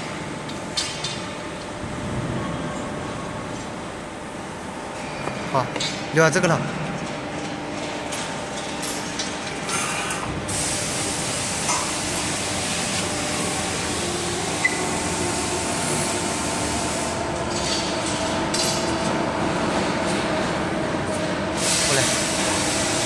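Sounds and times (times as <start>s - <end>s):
hydraulic press hum and hiss: 8.9s - 23.0s.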